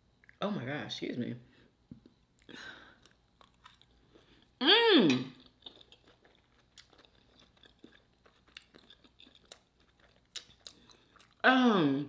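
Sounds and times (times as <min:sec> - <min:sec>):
chewing clicks and crunches: 0:02.4 - 0:04.3, 0:05.3 - 0:11.4.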